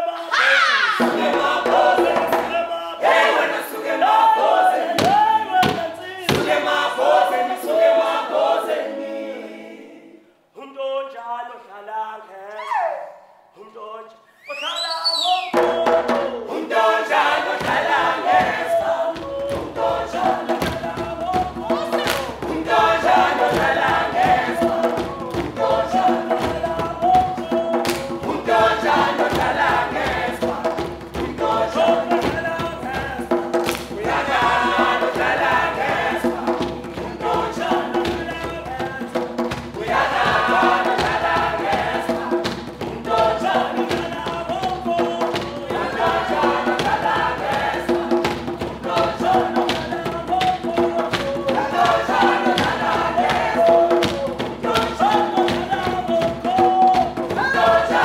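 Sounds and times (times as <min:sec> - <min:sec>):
choir singing with music: 0:00.0 - 0:58.0.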